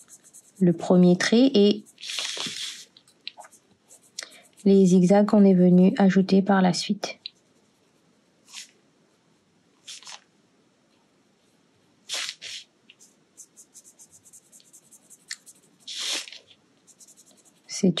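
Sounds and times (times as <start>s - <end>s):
pen scratching on paper: 0.0s - 2.8s, 3.4s - 5.1s, 13.4s - 16.3s, 16.9s - 17.7s.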